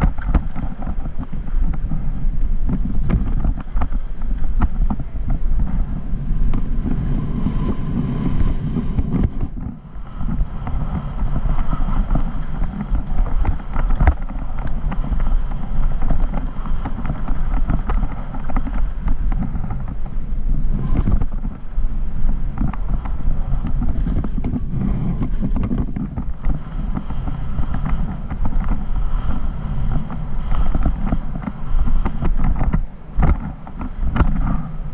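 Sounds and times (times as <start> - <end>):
bike tyres and frame rattling: 0.0 - 34.9
wind buffeting camera: 0.0 - 34.9.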